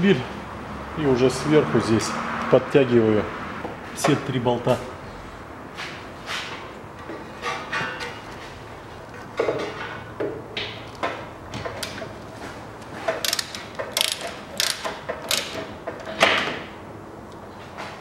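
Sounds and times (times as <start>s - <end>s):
ratchet wrench clicking: 13.2s - 15.7s.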